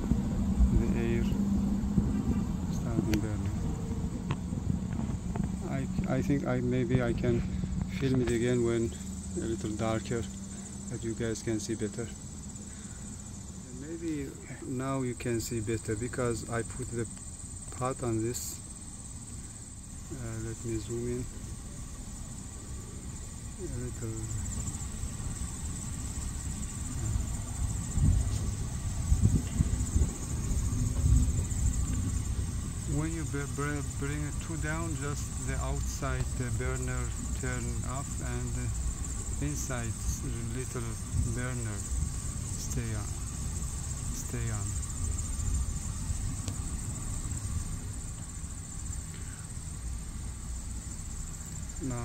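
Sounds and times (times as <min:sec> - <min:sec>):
wind rumble on microphone: 0:00.0 - 0:08.6, 0:25.7 - 0:48.0
insects trilling: 0:00.0 - 0:52.0.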